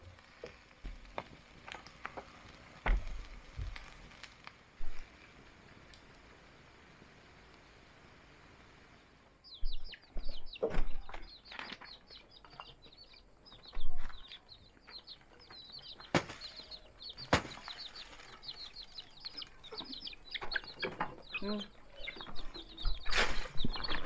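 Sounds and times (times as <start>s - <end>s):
thumps and rustles: 2.8s - 3.9s
chicks peeping: 9.4s - 24.0s.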